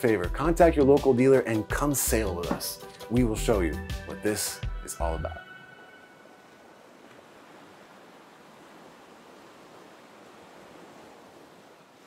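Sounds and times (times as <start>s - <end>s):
sea waves: 1.1s - 12.0s
wind: 4.4s - 12.0s.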